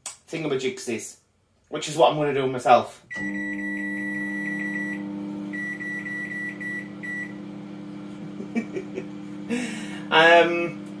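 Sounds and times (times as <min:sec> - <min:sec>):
microwave oven humming: 0:03.1 - 0:11.0.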